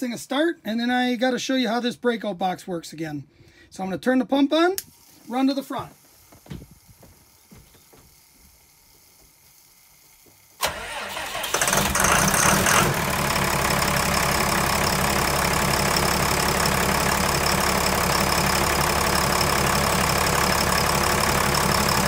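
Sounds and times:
starter cranking: 0:10.6 - 0:13.0
diesel engine revving and idling: 0:10.6 - 0:22.0.

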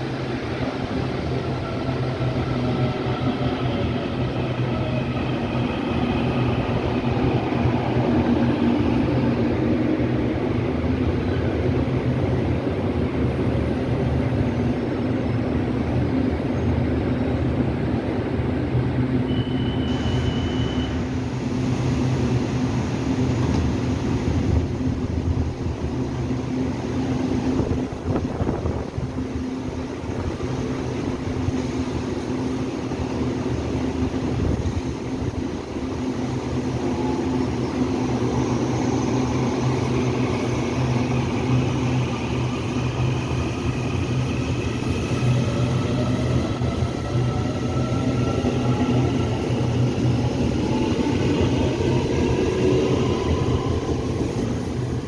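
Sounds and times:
short high beep: 0:19.3 - 0:21.0.

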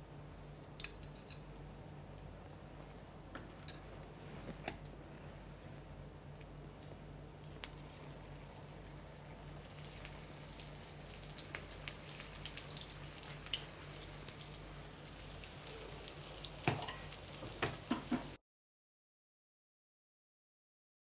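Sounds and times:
patties sizzling in oil: 0:07.4 - 0:18.4.

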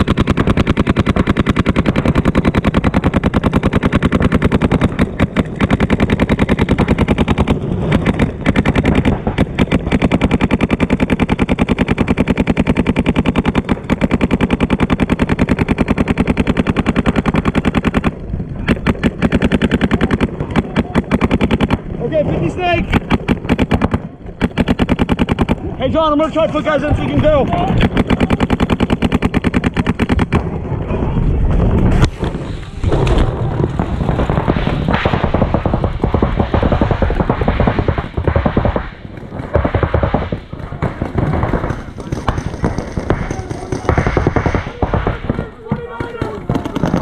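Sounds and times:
paintball markers firing rapidly: 0:00.0 - 0:30.6, 0:31.9 - 0:47.0.

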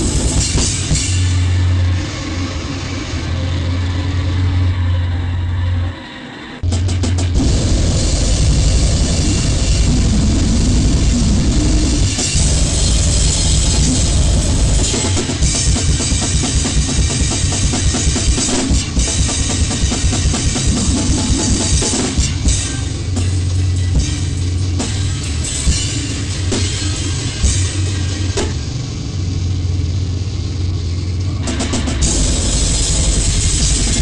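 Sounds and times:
distorted noise music: 0:00.0 - 0:34.0
fast drumming: 0:06.6 - 0:28.6, 0:31.4 - 0:34.0.

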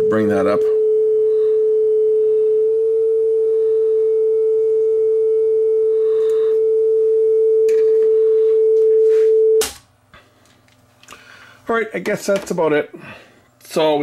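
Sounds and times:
steady test tone: 0:00.0 - 0:09.6.

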